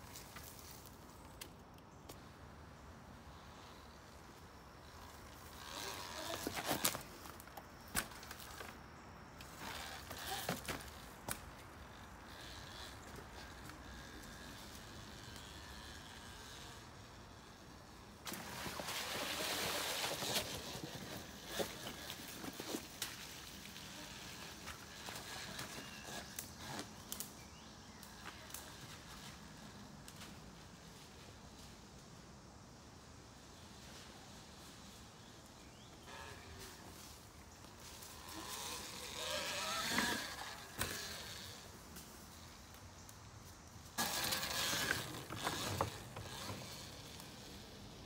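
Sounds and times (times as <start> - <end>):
tyre and chassis noise on dirt: 0.0 - 31.9, 33.2 - 48.0
faint steady background noise: 0.0 - 48.0
electric motor whine: 38.0 - 41.7, 44.0 - 48.0.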